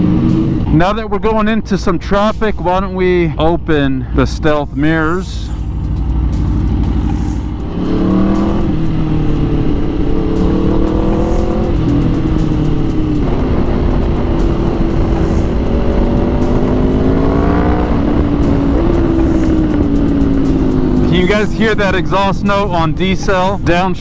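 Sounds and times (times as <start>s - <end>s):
motorcycle engine revving: 0.0s - 0.9s, 4.6s - 24.0s
wind rush: 7.0s - 23.6s.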